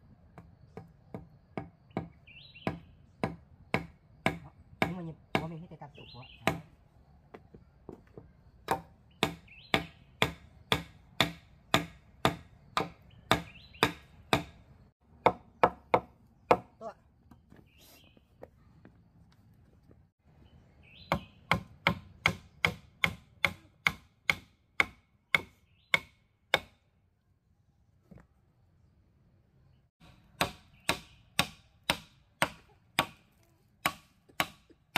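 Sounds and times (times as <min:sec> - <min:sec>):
machete chopping wood: 0:01.6 - 0:05.6, 0:06.4 - 0:06.7, 0:08.7 - 0:14.6, 0:21.1 - 0:26.8, 0:30.0 - 0:34.8.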